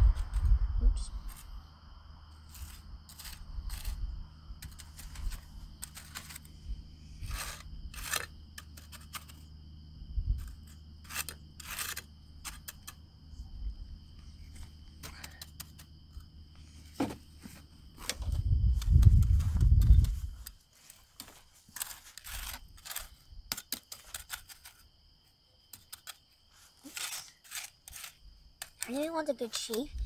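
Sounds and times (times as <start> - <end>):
tool scraping wet concrete: 7.2 - 9.4, 10.4 - 13.0, 25.7 - 29.8.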